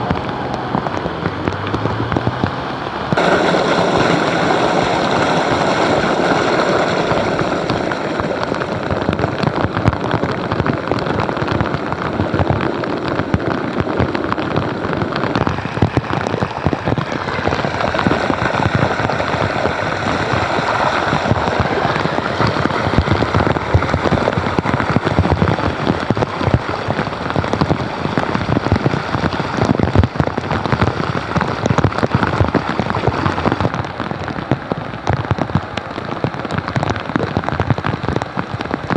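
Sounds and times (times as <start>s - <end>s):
water running into drain: 0.0s - 34.4s
heavy rain on floodwater: 0.0s - 38.9s.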